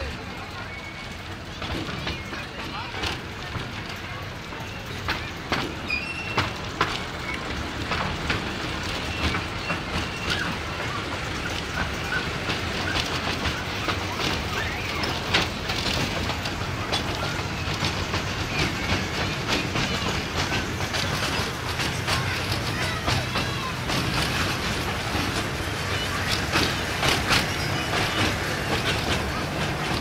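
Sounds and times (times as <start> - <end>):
train wheels rumbling: 0.0 - 30.0.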